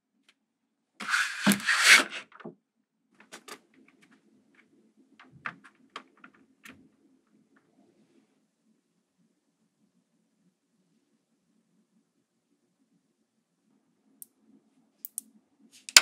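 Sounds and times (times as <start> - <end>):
magnet balls clicking: 15.0 - 15.2.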